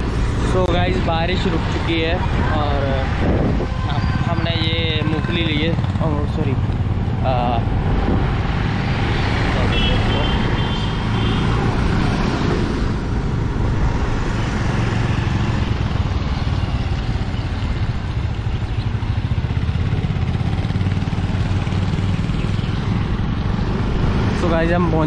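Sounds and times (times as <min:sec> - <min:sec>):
motor scooter engine hum: 0:04.9 - 0:24.4.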